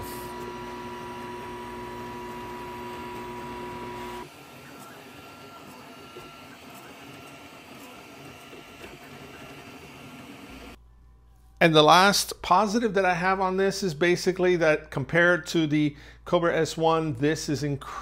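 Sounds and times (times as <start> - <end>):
three d printer running with whine: 0.0 - 10.8.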